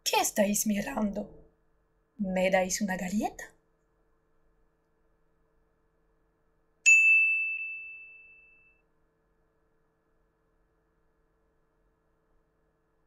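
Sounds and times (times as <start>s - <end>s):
bright bell ding: 6.9s - 8.8s.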